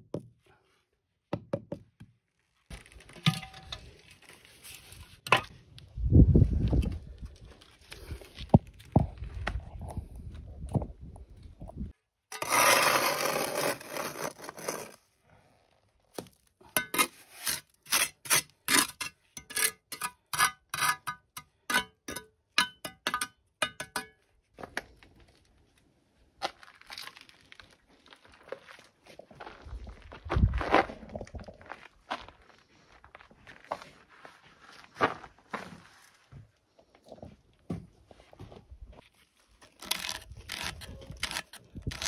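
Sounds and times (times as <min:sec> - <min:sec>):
trowel scraping mortar: 0:12.3 - 0:15.1, 0:16.7 - 0:24.1, 0:39.6 - 0:42.0.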